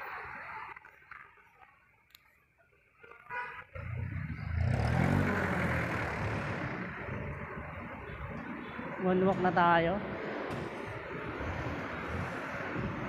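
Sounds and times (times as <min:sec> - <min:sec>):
road and wind noise: 0:00.0 - 0:13.0
diesel engine passing: 0:03.8 - 0:13.0.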